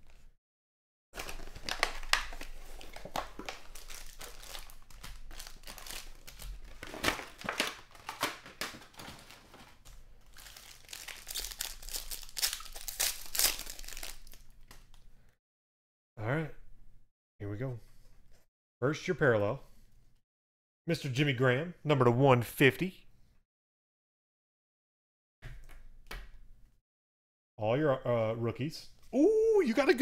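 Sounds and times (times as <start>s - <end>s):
foil card packs crinkling: 1.2s - 14.9s
packs tearing open: 1.2s - 15.0s.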